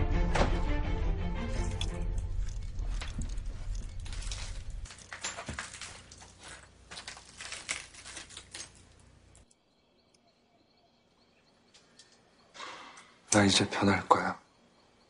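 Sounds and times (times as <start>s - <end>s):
irregular clicks and crackles: 1.5s - 10.2s, 11.7s - 12.4s.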